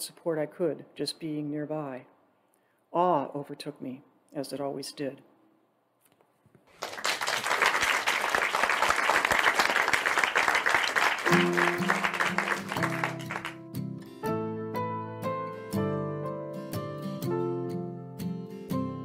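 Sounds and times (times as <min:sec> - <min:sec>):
applause: 0:06.7 - 0:13.6
acoustic guitar music: 0:11.3 - 0:19.0.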